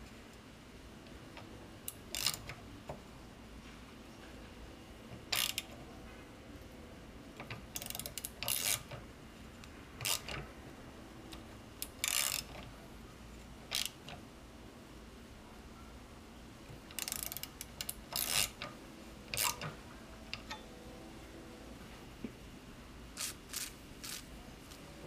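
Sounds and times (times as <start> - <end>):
ratchet wrench clicking: 1.9 - 2.6, 5.3 - 5.7, 7.7 - 9.0, 10.0 - 10.4, 11.8 - 12.6, 13.7 - 14.0, 16.9 - 18.7, 19.3 - 19.7, 23.2 - 24.3.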